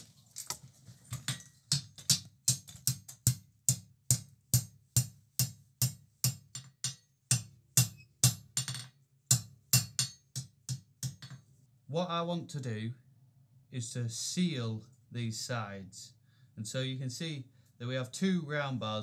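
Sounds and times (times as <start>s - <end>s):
hammer striking steel on anvil: 1.3s - 11.4s.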